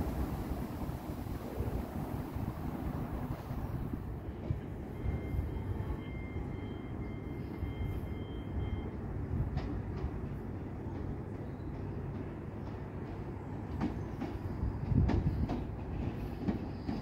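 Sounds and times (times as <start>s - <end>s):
low rumble of trains: 0.0s - 17.0s
faint high beeping: 4.8s - 9.0s.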